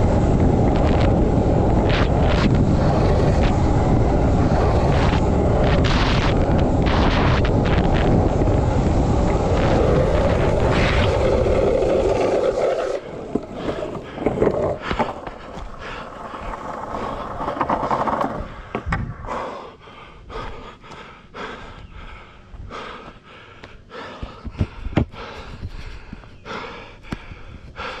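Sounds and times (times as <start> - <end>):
skateboard wheels clacking over cracks: 0.0 - 19.0
skateboard wheels rolling on rough concrete: 0.0 - 19.6.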